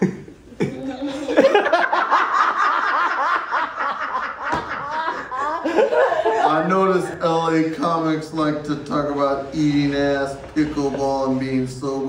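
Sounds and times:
audience laughing: 0:00.0 - 0:07.2.

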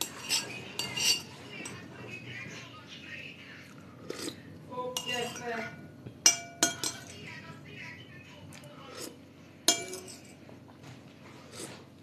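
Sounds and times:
spoon clinking against ceramic bowl: 0:00.0 - 0:01.8, 0:05.0 - 0:07.2, 0:09.7 - 0:10.4.

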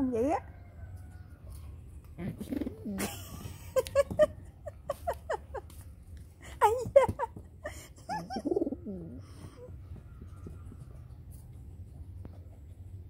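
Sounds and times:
pigeon cooing: 0:02.1 - 0:03.1, 0:08.0 - 0:11.0.

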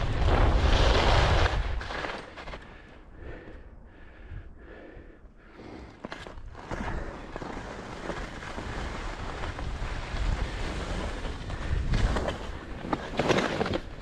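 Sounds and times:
crunches in snow: 0:05.5 - 0:14.0
wind buffeting microphone: 0:07.6 - 0:13.1.

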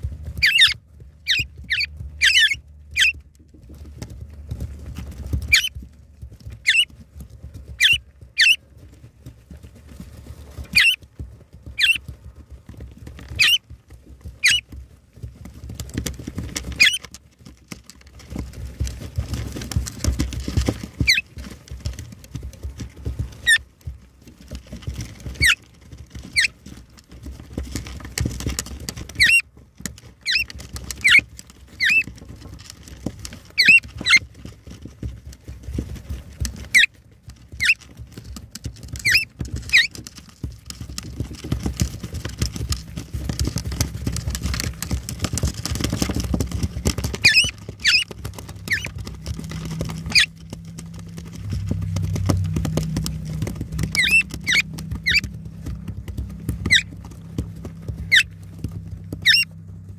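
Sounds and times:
bird feet scratching on debris: 0:00.0 - 0:59.9
low steady hum: 0:00.0 - 0:59.9
birds chirping high and sharp: 0:00.4 - 0:03.2, 0:05.5 - 0:05.7, 0:06.6 - 0:06.9, 0:07.8 - 0:08.6, 0:10.7 - 0:11.0, 0:11.8 - 0:12.0, 0:13.4 - 0:13.6, 0:14.4 - 0:14.6, 0:21.0 - 0:21.2, 0:26.3 - 0:26.5, 0:29.2 - 0:29.4, 0:30.2 - 0:31.2, 0:31.8 - 0:32.1, 0:33.6 - 0:34.2, 0:37.6 - 0:37.8, 0:39.0 - 0:39.9, 0:47.2 - 0:48.9, 0:49.9 - 0:50.3, 0:53.8 - 0:55.3, 0:56.6 - 0:56.9, 0:58.0 - 0:58.3, 0:59.2 - 0:59.5.

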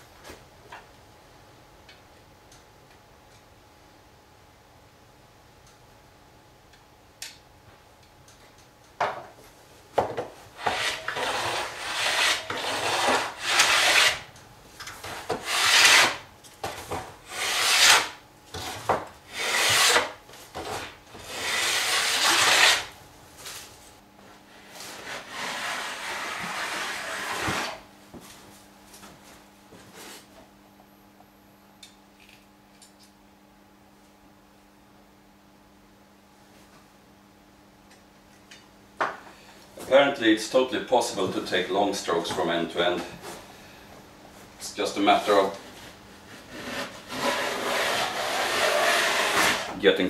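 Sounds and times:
hand plane rasping on wood: 0:10.6 - 0:14.2, 0:15.4 - 0:16.2, 0:17.3 - 0:18.1, 0:19.3 - 0:20.1, 0:21.2 - 0:22.9, 0:25.0 - 0:27.7, 0:46.4 - 0:49.8.

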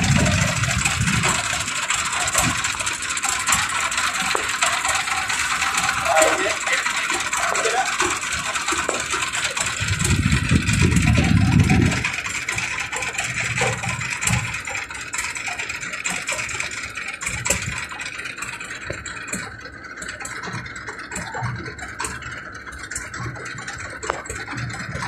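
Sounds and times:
motorboat engine running: 0:00.0 - 0:25.0
low rumble: 0:05.6 - 0:12.2.

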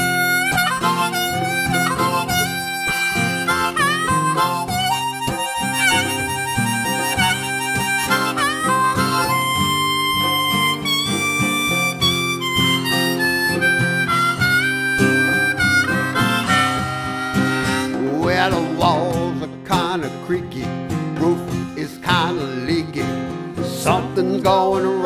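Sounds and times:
harmonica solo: 0:00.0 - 0:19.4
strummed acoustic guitar: 0:00.0 - 0:25.0.

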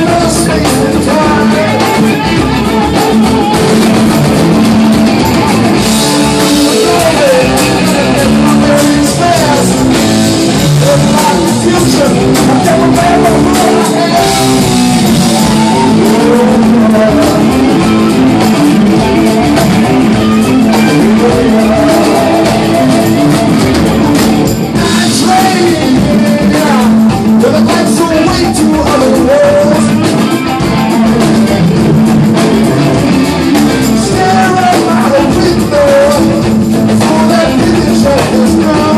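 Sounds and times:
bass: 0:00.0 - 0:38.9
drums: 0:00.0 - 0:38.9
electric guitars: 0:00.0 - 0:38.9
melodic lead guitar line: 0:00.0 - 0:38.9.

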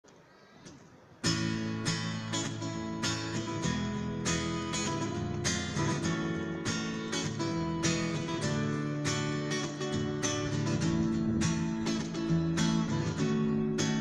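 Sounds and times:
acoustic guitar strumming: 0:01.2 - 0:14.0.

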